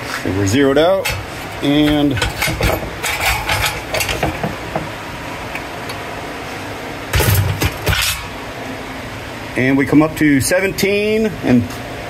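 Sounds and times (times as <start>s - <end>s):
metal scrap clanking: 1.0s - 4.6s, 7.1s - 8.3s.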